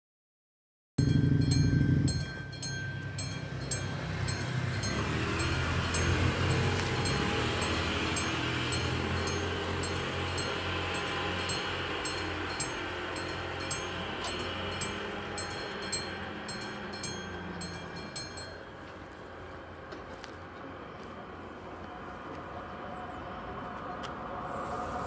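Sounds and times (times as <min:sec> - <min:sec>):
level-crossing warning bell: 0:01.0 - 0:20.2.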